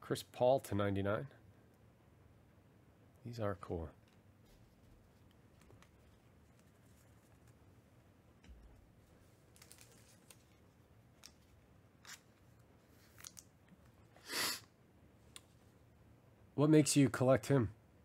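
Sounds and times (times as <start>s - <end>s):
trading cards and wrappers rustling: 4.5s - 7.7s, 9.2s - 13.5s.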